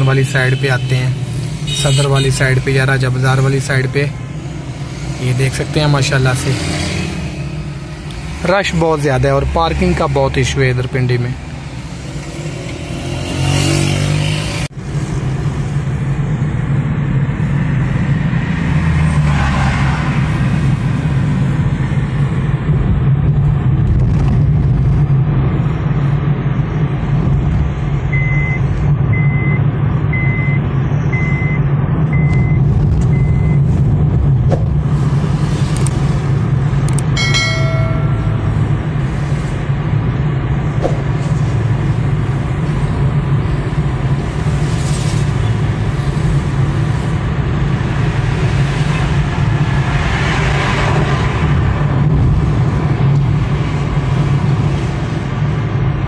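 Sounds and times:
car engine and road hum: 0:00.0 - 0:56.0
brief pitched tone: 0:37.2 - 0:39.0.

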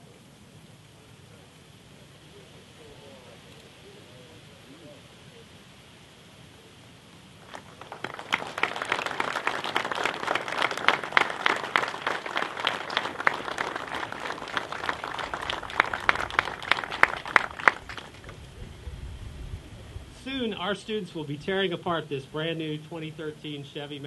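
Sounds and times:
audience applauding: 0:07.4 - 0:18.6.

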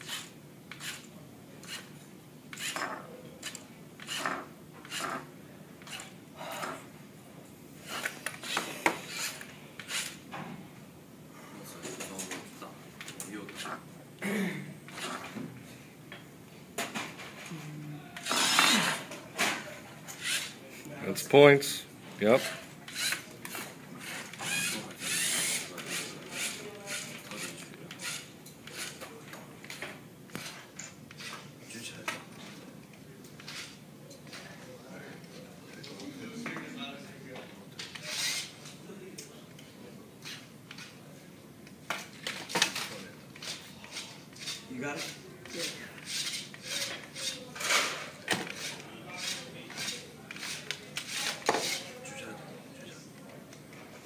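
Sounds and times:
toy robot motors whirring: 0:00.0 - 0:01.9, 0:02.5 - 0:05.2, 0:07.8 - 0:10.2, 0:18.2 - 0:19.1, 0:20.1 - 0:20.6, 0:22.4 - 0:29.0, 0:33.4 - 0:33.8, 0:37.8 - 0:38.5, 0:42.3 - 0:51.9
robot gear motors whirring: 0:24.0 - 0:26.6.

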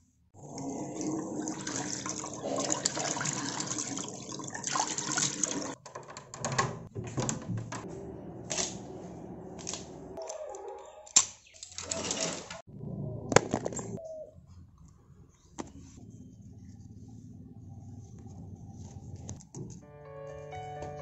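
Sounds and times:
water running and splashing: 0:00.5 - 0:05.8.

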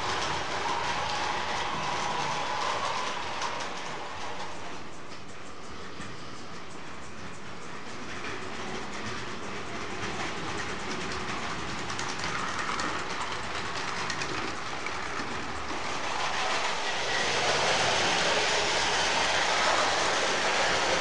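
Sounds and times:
toy train wheels clattering on track: 0:00.0 - 0:21.0.

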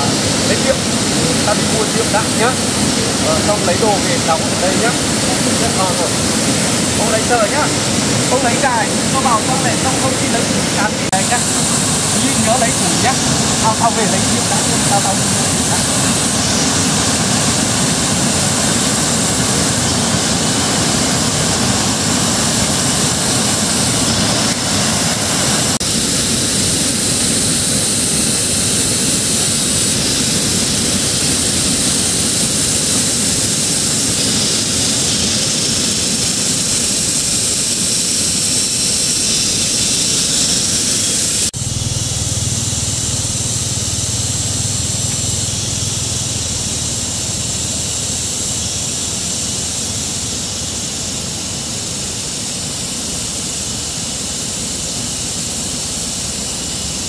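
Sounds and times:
mountain stream rushing: 0:00.0 - 0:57.0.

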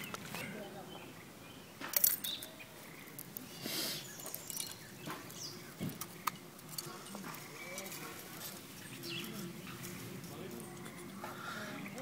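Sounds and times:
metal pendants and beads clicking: 0:01.9 - 0:03.4, 0:04.1 - 0:08.0.

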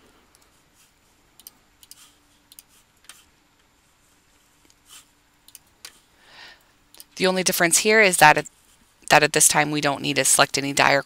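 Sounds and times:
computer mouse clicks: 0:01.4 - 0:03.3, 0:05.4 - 0:06.0.

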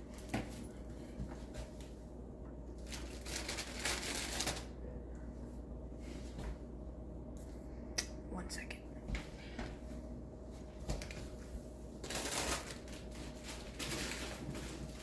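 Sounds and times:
plastic crinkling and rustling: 0:02.8 - 0:04.7, 0:12.0 - 0:15.0.

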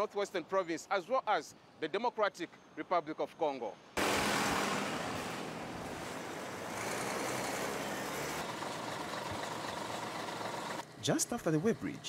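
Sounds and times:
road traffic rushing: 0:04.0 - 0:11.7
trucks passing: 0:04.0 - 0:12.0.

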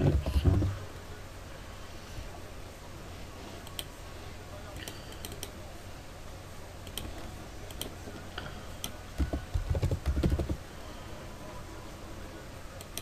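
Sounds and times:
keyboard typing: 0:08.8 - 0:10.6.

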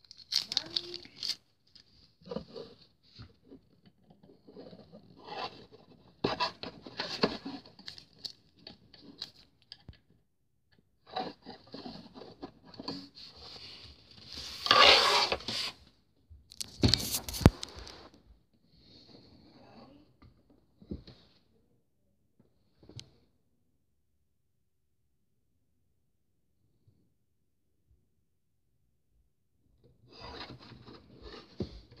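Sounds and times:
plastic packaging rustling: 0:00.0 - 0:01.9.

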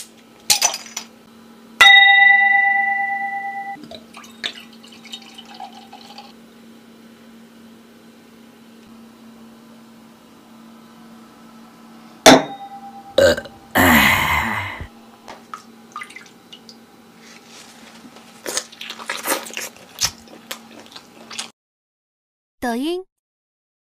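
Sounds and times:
faint steady hum: 0:01.3 - 0:19.8
loud burp: 0:13.2 - 0:14.9.

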